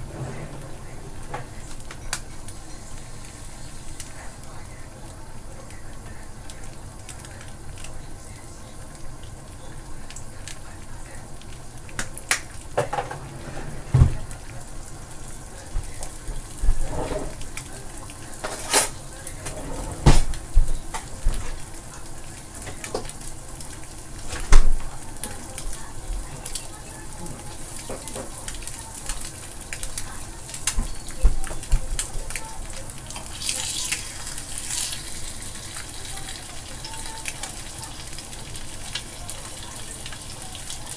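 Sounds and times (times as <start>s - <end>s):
eggs sizzling in a pan: 0.7s - 13.3s, 13.9s - 40.9s
metal turner scraping pan: 16.5s - 17.6s.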